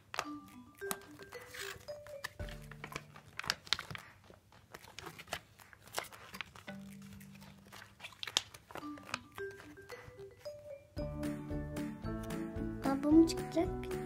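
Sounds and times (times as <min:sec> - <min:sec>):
crinkly packaging crackling: 0:00.0 - 0:10.6
faint background music: 0:00.0 - 0:14.0.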